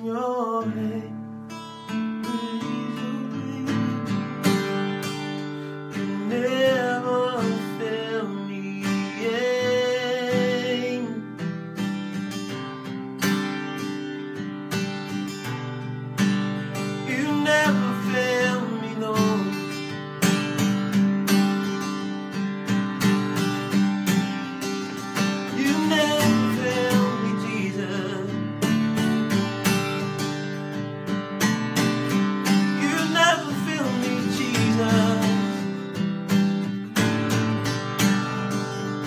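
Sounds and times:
man singing: 0.0 - 11.6, 16.8 - 20.0, 25.1 - 30.0, 32.2 - 36.0
acoustic guitar strumming: 0.0 - 39.0.

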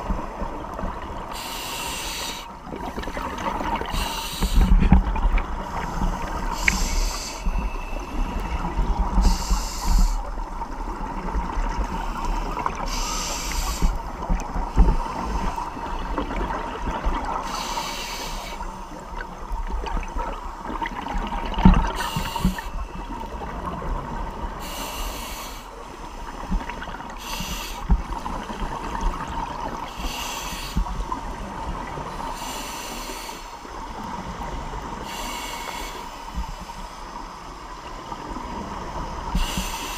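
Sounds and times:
regulator breathing hiss: 1.3 - 2.6, 3.8 - 4.8, 5.7 - 8.6, 9.2 - 10.3, 12.8 - 14.1, 17.4 - 19.0, 22.0 - 22.8, 24.6 - 26.4, 27.2 - 27.9, 29.9 - 30.9, 32.3 - 33.7, 34.9 - 37.4, 39.3 - 39.9
underwater bubbles rumbling: 2.6 - 17.4, 18.7 - 24.6
faint steady tone: 3.8 - 20.8.

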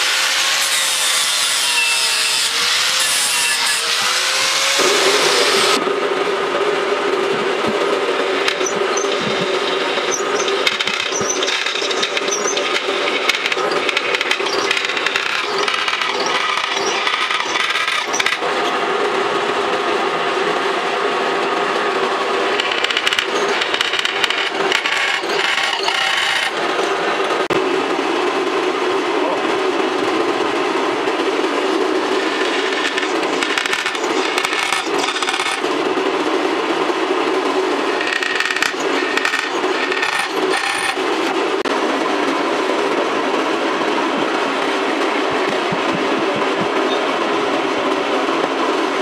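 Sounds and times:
angle grinder sanding wood: 0.0 - 5.8
drill press drilling steel: 8.4 - 18.5, 22.5 - 26.6, 32.1 - 35.7, 37.9 - 41.4.

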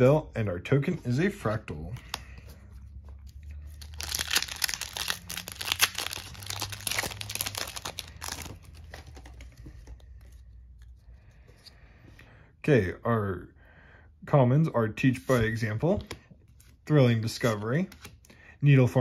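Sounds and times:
foil wrapper tearing and crinkling: 3.8 - 9.2.

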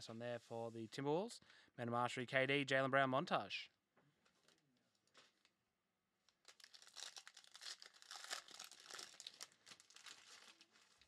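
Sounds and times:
foil wrapper crinkling and tearing: 6.3 - 11.0.

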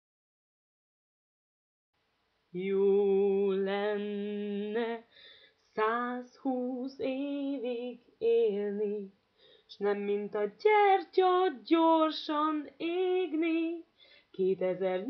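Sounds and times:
woman singing unaccompanied: 2.6 - 5.1, 5.7 - 15.0.

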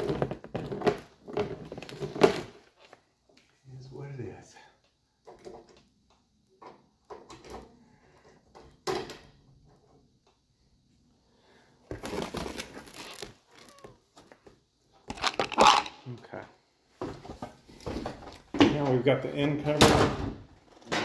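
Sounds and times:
rustling: 11.9 - 14.6.

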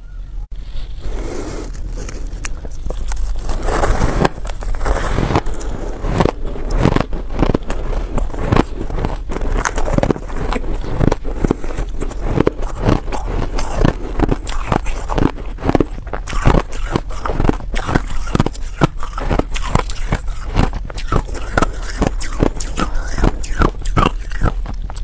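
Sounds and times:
low hum: 0.0 - 25.0
chewing crunchy ice: 1.6 - 25.0.

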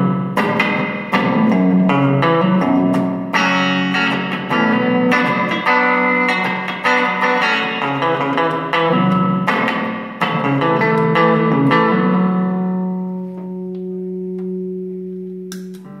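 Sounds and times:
electric guitar chords with reverb: 0.0 - 16.0.

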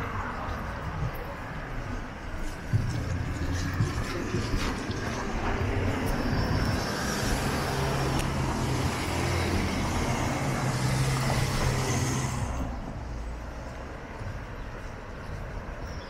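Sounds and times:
tyre noise: 0.0 - 16.0
vehicle engine hum: 0.0 - 16.0.

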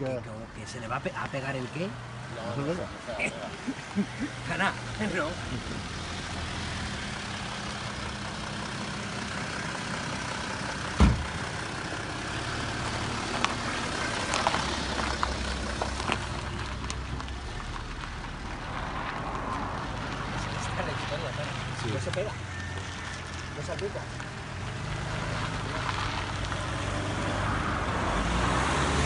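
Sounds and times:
engine idling: 3.5 - 18.6
sharp thump: 11.0 - 11.4.

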